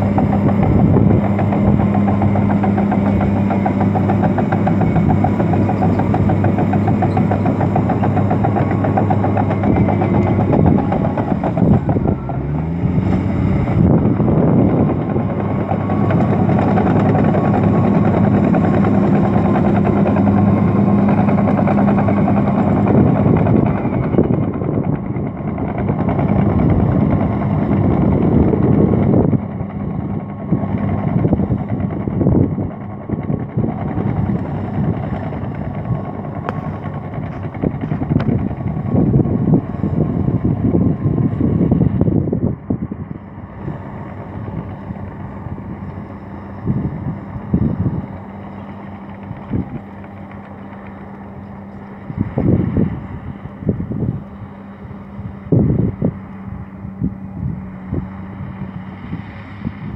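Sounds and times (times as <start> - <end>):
diesel engine under load: 0.0 - 59.9.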